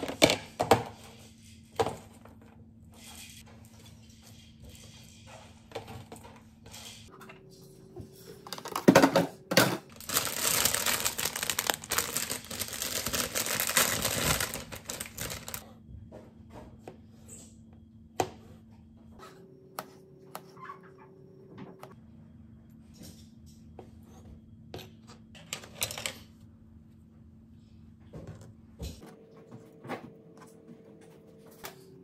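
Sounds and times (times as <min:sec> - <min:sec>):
lettuce crunching and tearing: 0:10.0 - 0:15.6.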